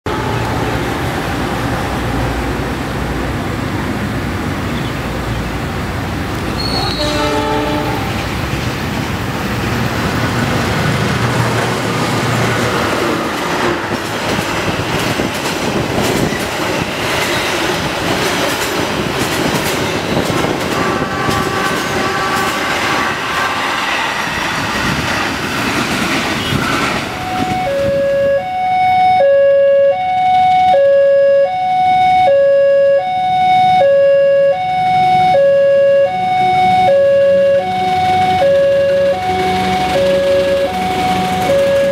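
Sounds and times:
train horn blast: 0.0s - 0.8s, 6.6s - 8.2s, 20.7s - 23.8s, 26.4s - 31.6s
train wheels clattering: 10.1s - 27.2s
level crossing alarm: 27.1s - 41.9s.

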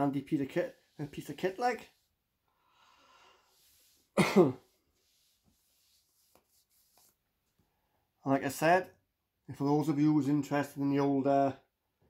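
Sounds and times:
faint breath: 2.5s - 3.7s
man clearing throat: 4.2s - 4.7s.

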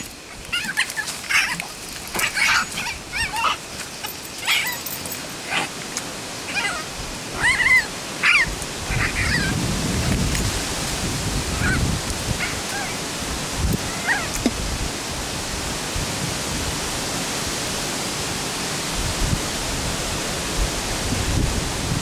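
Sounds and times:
dog yelping and barking: 0.5s - 5.7s, 6.5s - 9.6s, 11.5s - 11.8s, 12.4s - 13.0s, 13.8s - 14.4s.

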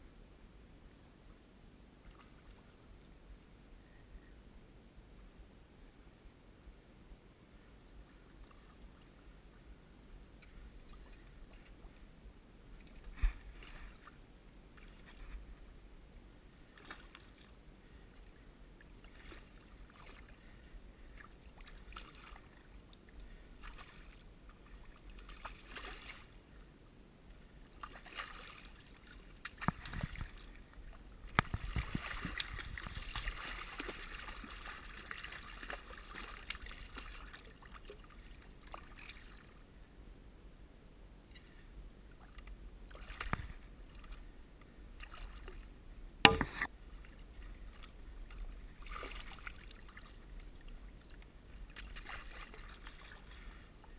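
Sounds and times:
water sloshing: 12.8s - 14.2s, 18.8s - 26.4s, 27.7s - 39.6s, 42.2s - 44.3s, 45.0s - 53.9s
fish thrashing and splashing: 31.4s - 37.9s.

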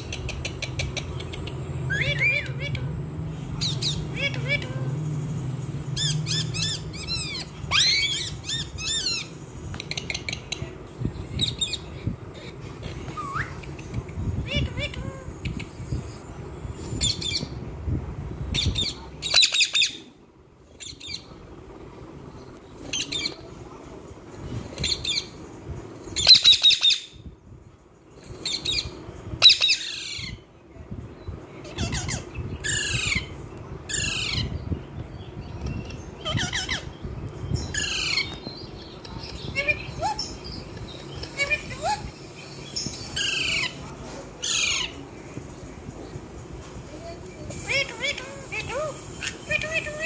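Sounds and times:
parakeets squawking: 0.0s - 10.7s, 14.4s - 16.2s, 18.5s - 20.1s, 26.2s - 27.2s, 28.4s - 30.4s, 31.6s - 34.6s, 35.7s - 45.1s, 47.4s - 50.0s.

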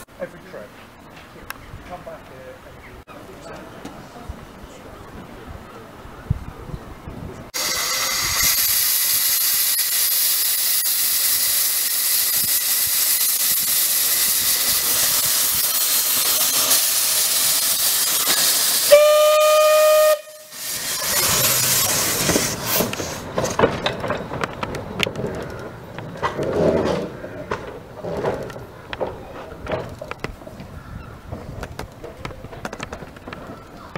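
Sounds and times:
steam locomotive hissing: 7.6s - 23.6s
locomotive puffing and clanking: 13.6s - 19.7s, 20.5s - 30.1s
steam whistle blast: 18.8s - 20.6s.

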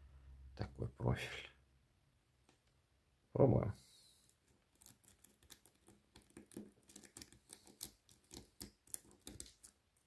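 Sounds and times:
lock pick clicking and scraping: 4.8s - 9.7s.

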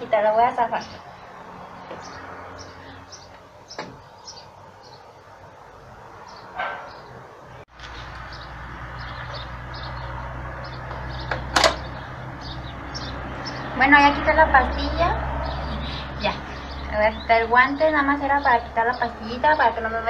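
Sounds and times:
small birds chirping: 0.0s - 20.0s
dog bark: 6.6s - 7.0s.

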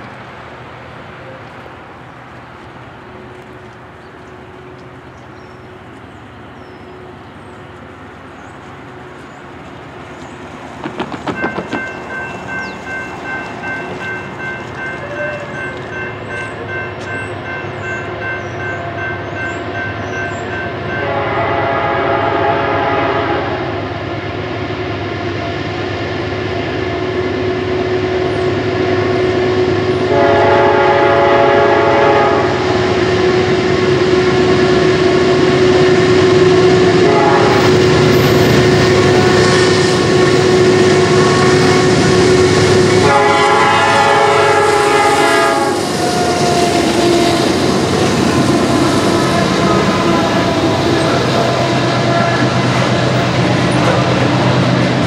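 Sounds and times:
train rumble: 0.0s - 55.0s
locomotive chime horn blasts: 11.4s - 23.8s, 27.9s - 35.0s, 35.8s - 47.6s, 48.7s - 52.8s.

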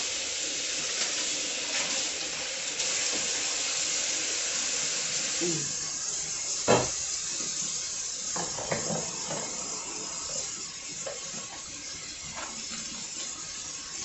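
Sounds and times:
running tap water: 0.0s - 14.0s
dishes knocking: 6.7s - 7.0s, 8.4s - 9.5s.

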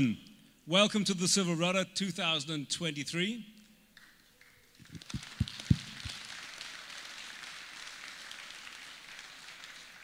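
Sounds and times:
audience applauding: 4.8s - 10.0s
dull low thumps: 4.9s - 6.2s.

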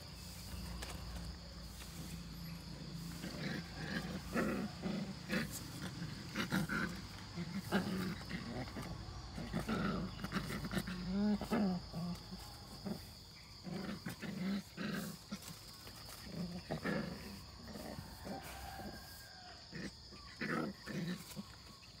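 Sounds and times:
puppies growling and yelping: 0.0s - 22.0s.

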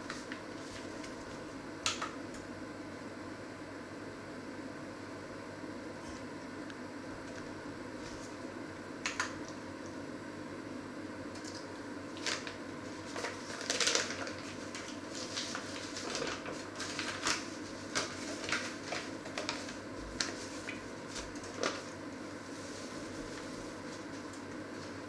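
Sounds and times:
paper bag rustling: 12.2s - 25.0s.

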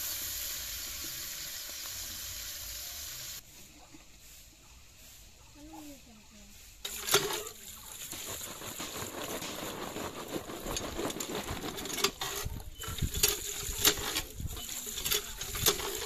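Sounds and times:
hand pump handle clanking: 11.8s - 16.0s.

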